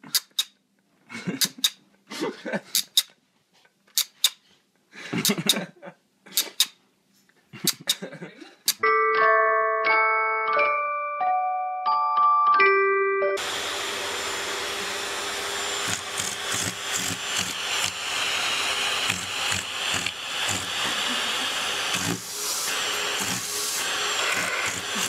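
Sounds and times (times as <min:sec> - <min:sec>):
vacuum cleaner running: 0:13.4 - 0:25.0.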